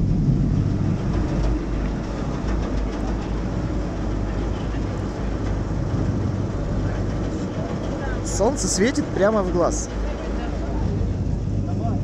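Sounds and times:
boat engine rumbling: 0.0s - 12.0s
rushing noise: 0.0s - 12.0s.

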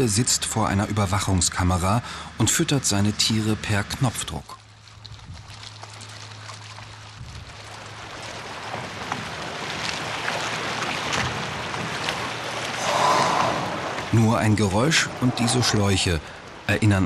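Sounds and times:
air and pellets rushing through hoses: 12.8s - 13.9s.

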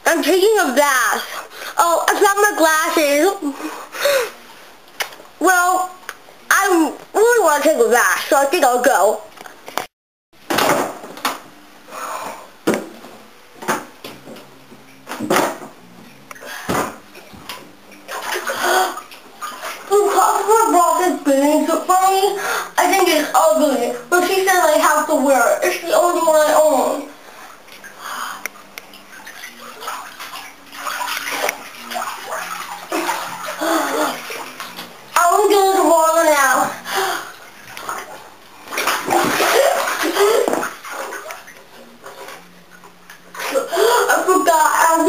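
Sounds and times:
bathwater sloshing and splashing: 12.2s - 45.0s.

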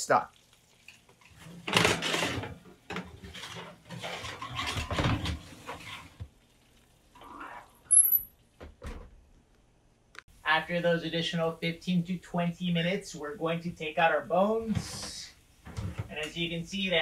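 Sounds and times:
metal pan clattering and scraping: 1.4s - 6.2s.

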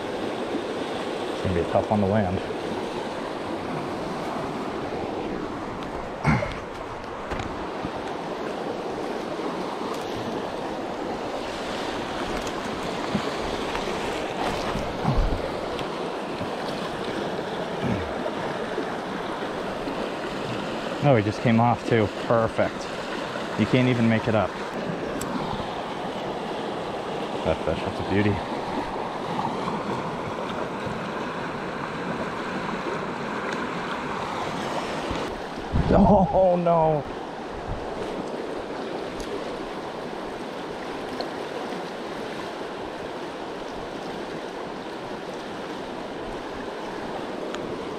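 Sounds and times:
river rushing: 0.0s - 47.9s
wind on microphone: 14.6s - 15.7s, 34.9s - 36.2s, 37.5s - 38.3s.

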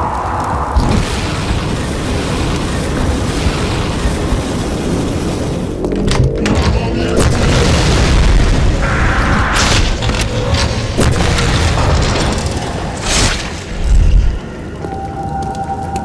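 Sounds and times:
explosion booms: 0.0s - 5.7s, 7.2s - 12.6s
deep rumble: 0.0s - 16.0s.

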